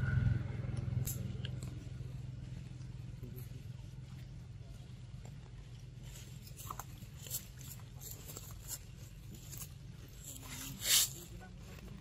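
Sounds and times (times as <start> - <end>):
low background rumble: 0.0 - 12.0
dry leaves crackling: 6.0 - 11.8.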